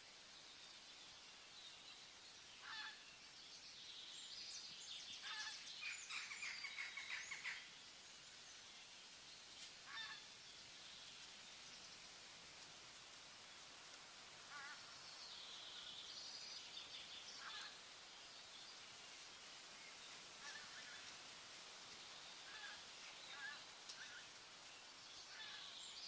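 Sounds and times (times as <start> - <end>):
faint bird calls: 2.6 - 3.0, 5.2 - 7.7, 9.8 - 10.3, 17.3 - 17.9, 22.4 - 24.4, 25.2 - 26.0.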